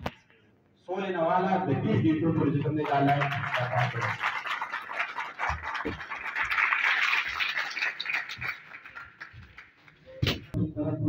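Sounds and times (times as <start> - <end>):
audience clapping: 2.6 - 10.1.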